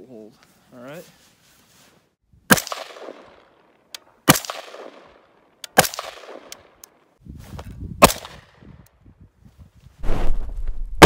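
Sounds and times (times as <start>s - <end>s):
rifle shots echoing: 2.5s - 6.8s.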